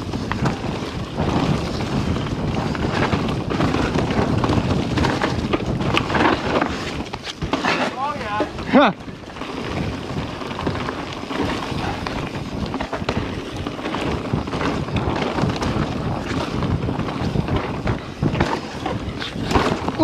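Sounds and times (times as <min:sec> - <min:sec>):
bike knocks and rattles: 0:00.0 - 0:20.0
tyres crunching on dirt: 0:00.0 - 0:20.0
wind rushing over microphone: 0:00.0 - 0:20.0.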